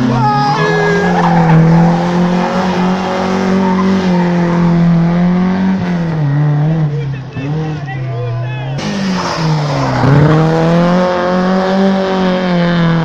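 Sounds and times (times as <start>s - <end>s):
tyres squealing: 0.0s - 4.3s
car engine at high revs: 0.0s - 13.0s.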